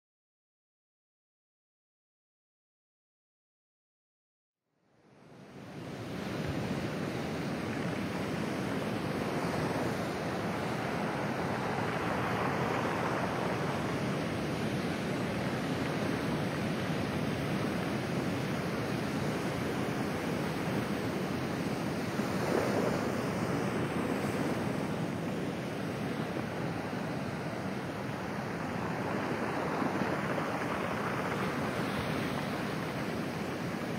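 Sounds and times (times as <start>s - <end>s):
surf washing over pebbles: 5.6s - 33.9s.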